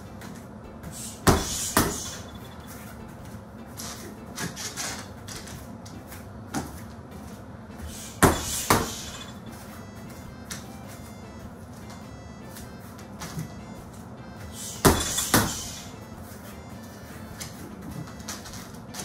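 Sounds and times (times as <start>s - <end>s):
punches thudding on heavy bag: 1.0s - 2.3s, 8.0s - 9.3s, 14.8s - 15.8s.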